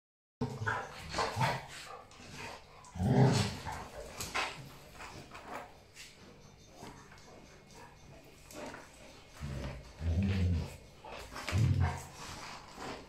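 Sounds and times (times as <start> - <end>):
dogs growling and barking: 0.4 - 5.6, 7.8 - 13.0
dogs scuffling: 0.4 - 13.0.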